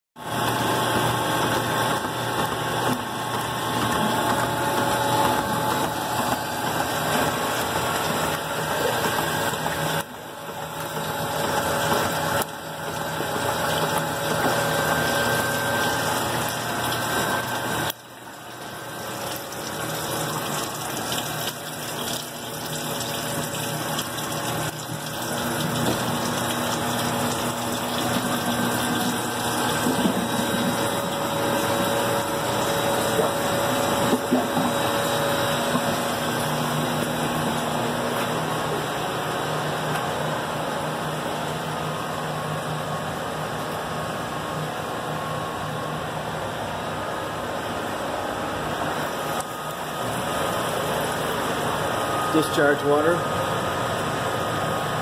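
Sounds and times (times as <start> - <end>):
machine hum: 0.2 - 55.0
water running and splashing: 10.6 - 34.8.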